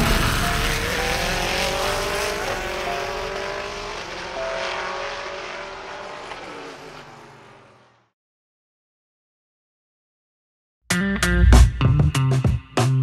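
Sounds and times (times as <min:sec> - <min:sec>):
race car engines: 0:00.0 - 0:08.1.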